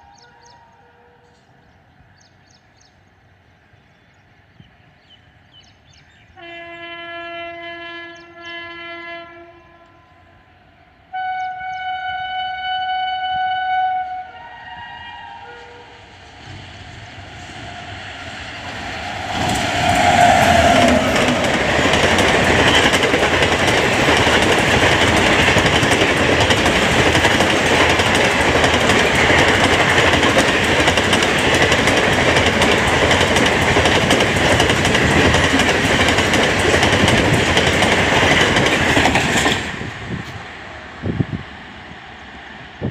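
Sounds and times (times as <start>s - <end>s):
electric locomotive passing: 0.0s - 42.9s
wheels rushing on rails: 14.7s - 42.9s.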